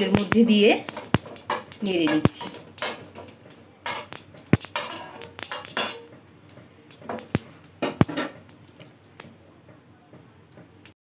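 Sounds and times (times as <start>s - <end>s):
spatula scraping in frying pan: 0.0s - 6.3s
spatula clicking against pan: 0.0s - 9.3s.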